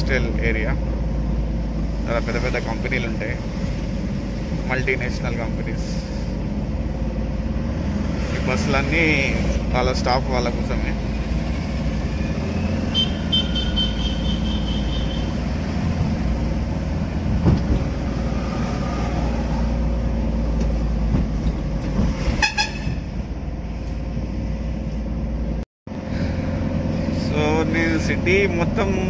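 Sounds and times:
car engine and road noise: 0.0s - 29.0s
short horn toot: 22.4s - 23.1s.

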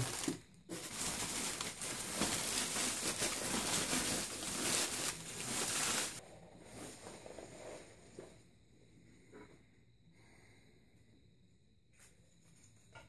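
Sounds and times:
plastic bag rustling and crinkling: 0.0s - 7.8s.

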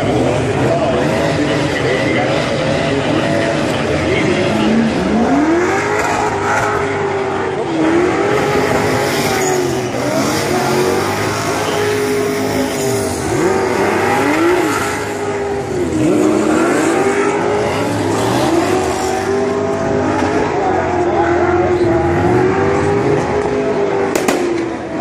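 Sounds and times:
car engine at high revs: 0.0s - 25.0s
sharp cracks: 24.1s - 24.7s.

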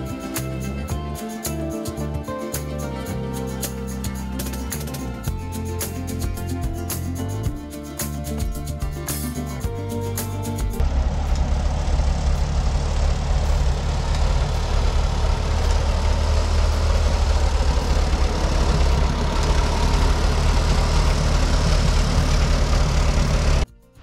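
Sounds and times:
dozer engine droning: 10.7s - 23.7s.

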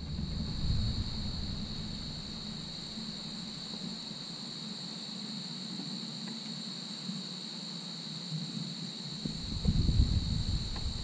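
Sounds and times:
low steady hum: 0.0s - 4.4s, 9.2s - 11.0s
insects trilling: 0.0s - 11.0s.

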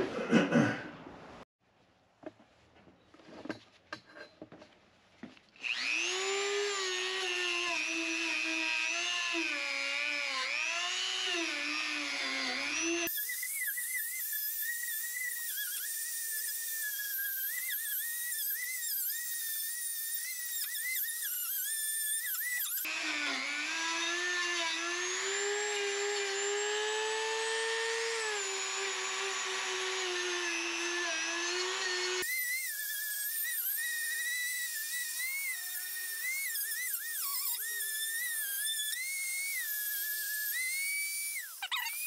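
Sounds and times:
wire wheel power tool whining: 5.6s - 42.0s.

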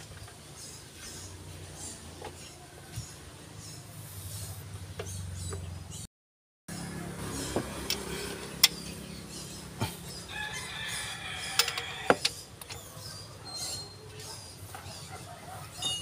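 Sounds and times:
rooster crowing: 10.3s - 12.3s.

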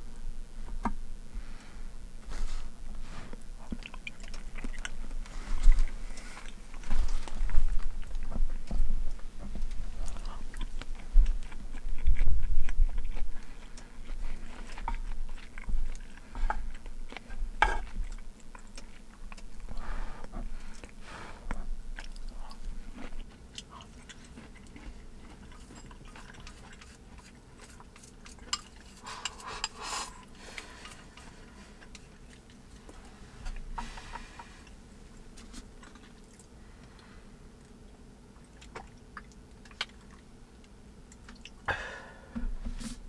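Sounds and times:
person chewing: 0.4s - 42.2s
person sipping broth: 28.8s - 36.5s.

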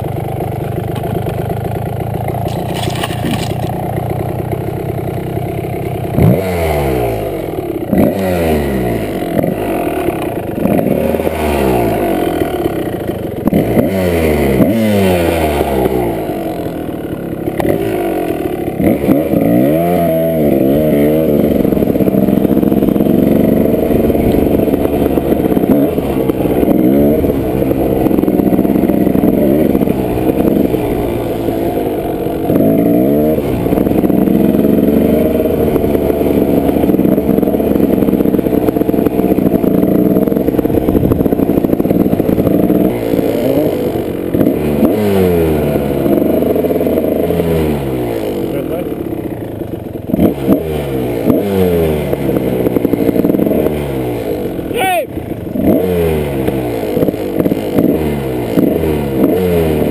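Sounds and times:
dirt bike engine revving: 0.8s - 59.9s.

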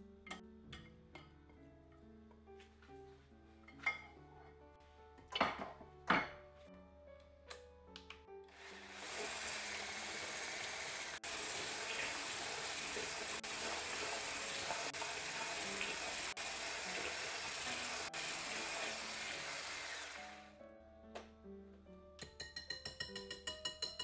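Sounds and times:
water running from a tap: 8.5s - 20.4s.

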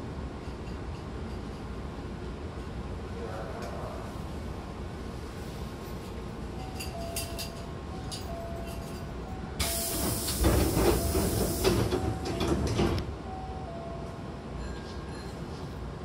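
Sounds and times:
air hiss of train doors: 9.6s - 13.0s
doors sliding shut with knocks: 10.0s - 13.1s.

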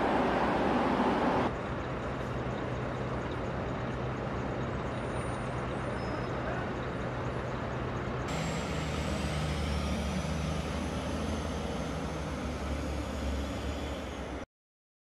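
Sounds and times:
truck engine drone passing: 0.0s - 5.9s, 6.6s - 14.5s
faint high whine: 7.6s - 14.5s.

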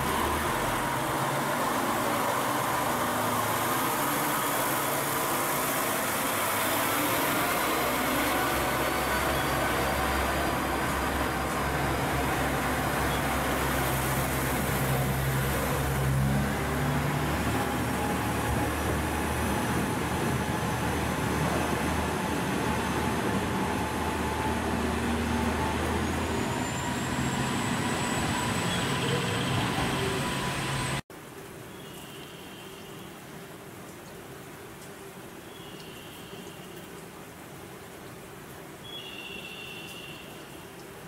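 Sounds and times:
diesel railcar engine: 0.0s - 31.0s
rumble of train wheels: 16.5s - 31.0s.

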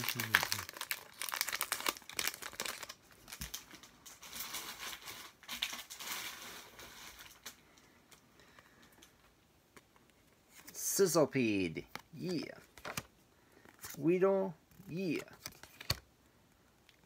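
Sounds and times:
foil wrapper crinkling: 0.0s - 7.6s.

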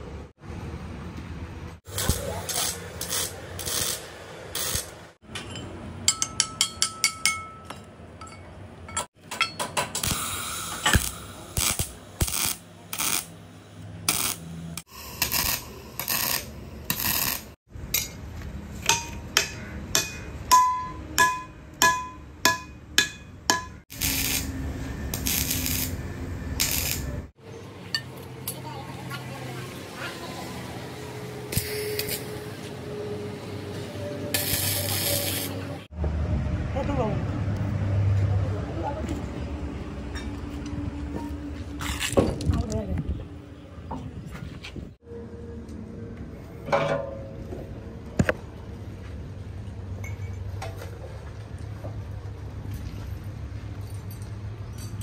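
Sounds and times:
crackling electric arc cutting: 1.9s - 5.1s, 10.0s - 13.4s, 14.0s - 17.6s, 23.9s - 27.3s, 31.5s - 32.3s, 34.3s - 35.6s.

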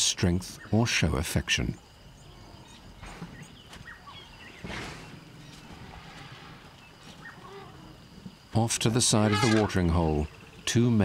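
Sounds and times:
insect hum: 0.0s - 11.0s
faint bird chirps: 0.2s - 8.5s
elephant breathy rush: 4.6s - 7.0s.

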